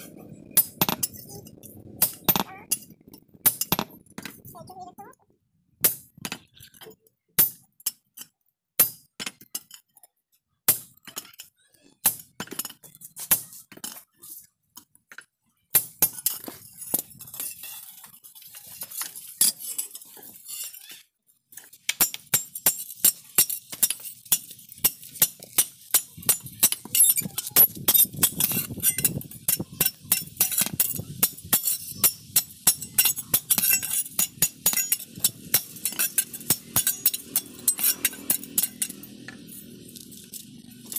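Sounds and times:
hammer striking metal on anvil: 27.6s - 39.4s.

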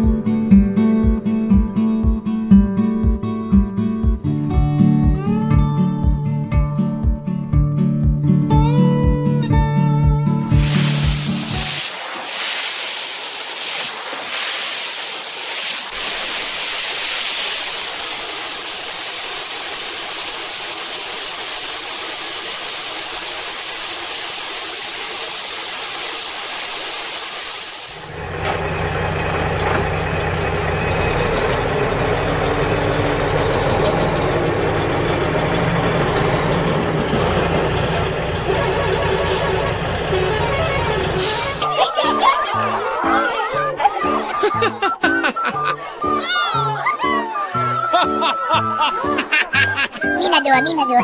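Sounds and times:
steady hiss: 10.5s - 28.1s.

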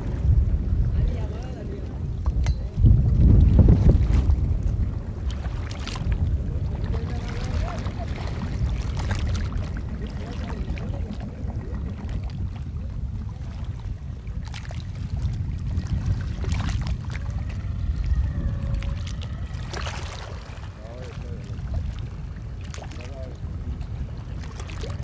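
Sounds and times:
outdoor rumble over water: 0.0s - 25.0s
paddles splashing and knocking: 22.6s - 23.3s, 24.4s - 25.0s.

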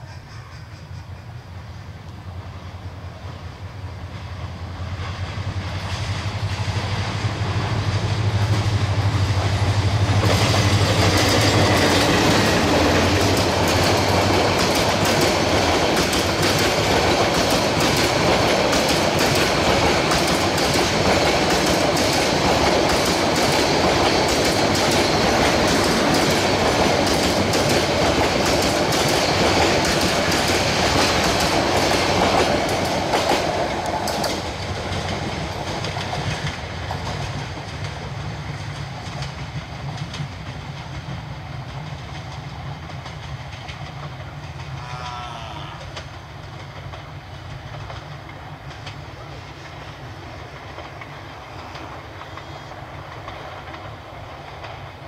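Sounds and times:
diesel locomotive engine: 0.0s - 55.0s
train wheels clattering on rails: 0.0s - 55.0s.

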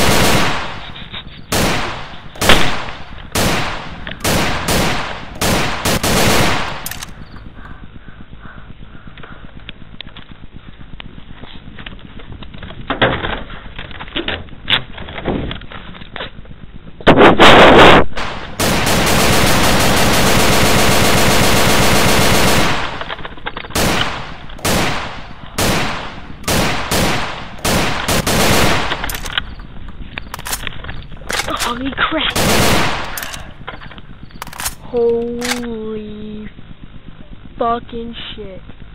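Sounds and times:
machine-gun fire: 0.0s - 7.4s, 17.8s - 29.7s, 32.3s - 33.6s.

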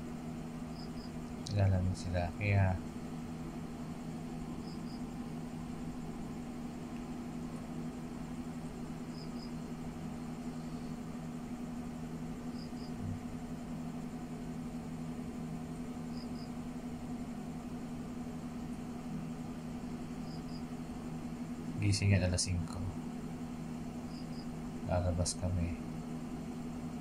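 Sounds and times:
small motor humming: 12.4s - 13.4s.

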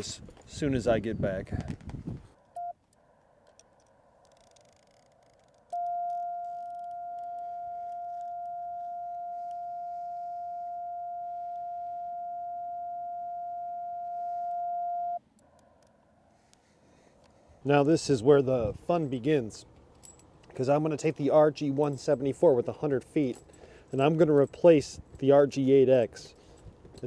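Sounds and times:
radio sidetone beep: 5.8s - 15.2s.

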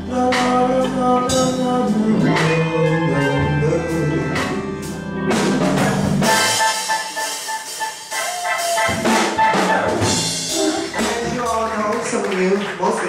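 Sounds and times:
bass line: 0.0s - 12.3s
live jazz band: 0.0s - 12.4s
drum kit and cymbals: 4.4s - 11.8s.

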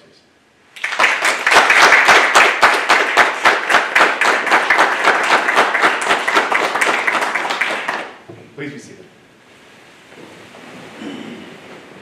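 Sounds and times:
audience applauding: 0.8s - 8.2s
close individual claps: 0.8s - 8.3s.

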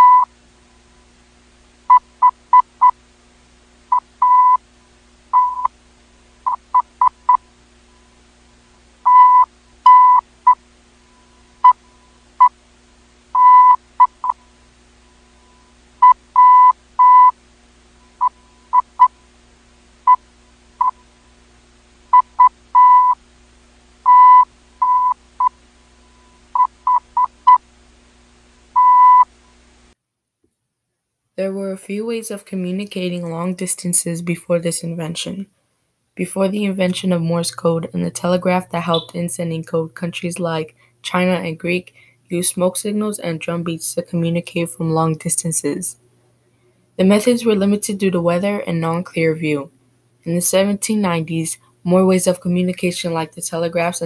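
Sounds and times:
morse code beeping: 0.0s - 0.3s, 3.9s - 4.6s, 5.4s - 5.7s, 9.1s - 10.2s, 13.4s - 14.4s, 16.0s - 17.3s, 22.2s - 23.2s, 24.1s - 25.5s, 28.8s - 29.2s, 38.8s - 39.2s.

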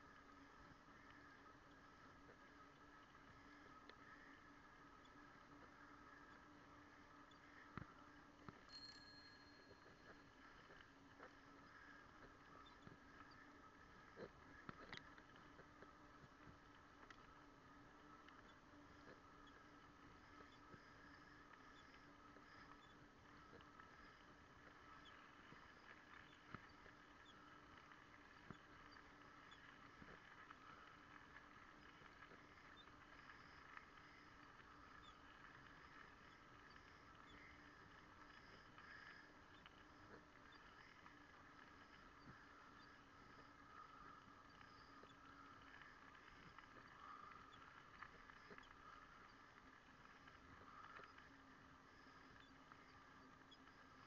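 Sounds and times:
faint steady hiss: 0.0s - 54.0s
faint ticks: 0.0s - 54.0s
thin whining tones: 0.0s - 54.0s.

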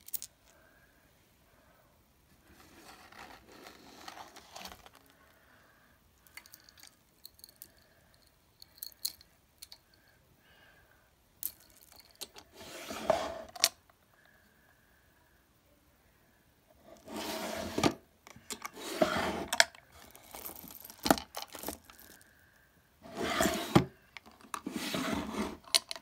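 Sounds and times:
rubbing scrape: 2.5s - 4.9s, 12.5s - 13.5s, 17.0s - 17.8s, 18.8s - 19.5s, 23.0s - 23.8s, 24.6s - 25.7s
metal necklaces jangling: 6.3s - 9.8s, 11.4s - 12.3s, 20.0s - 22.2s.

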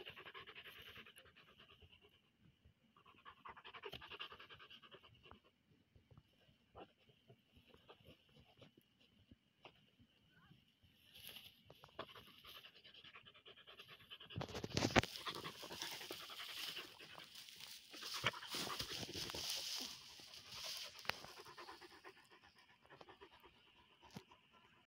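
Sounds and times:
dog panting: 0.0s - 2.3s, 11.9s - 24.9s
dry grass rustling and crackling: 11.0s - 12.6s, 14.4s - 22.0s.

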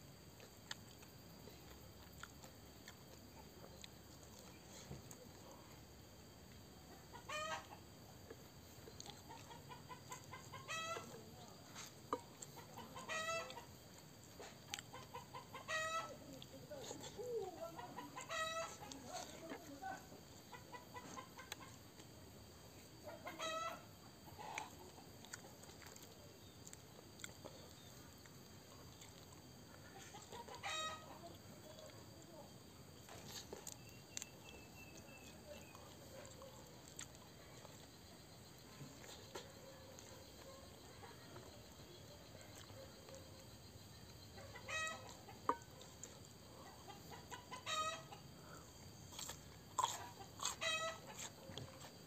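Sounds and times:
chicken cackling: 6.9s - 7.9s, 9.0s - 11.2s, 11.8s - 13.8s, 14.4s - 21.8s, 23.0s - 25.0s, 29.8s - 31.9s, 44.3s - 51.9s.

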